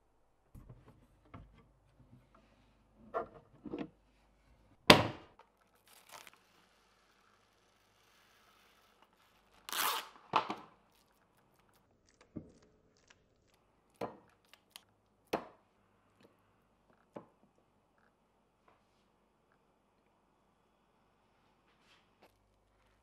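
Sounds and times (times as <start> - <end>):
cling wrap ripping: 5.8 - 11.8.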